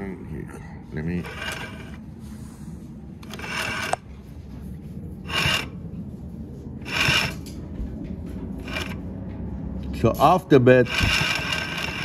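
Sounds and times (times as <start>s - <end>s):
steady low hum: 0.0s - 12.0s
rasping scraping noise: 1.1s - 2.6s, 3.2s - 4.1s, 5.2s - 5.8s, 6.8s - 7.6s, 8.6s - 9.0s, 10.8s - 12.0s
sewing machine stitching: 10.9s - 12.0s.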